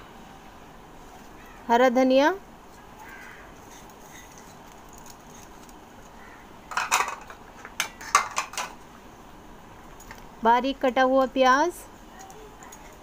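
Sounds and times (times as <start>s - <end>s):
kitchen bowls and utensils clinking: 6.7s - 8.8s.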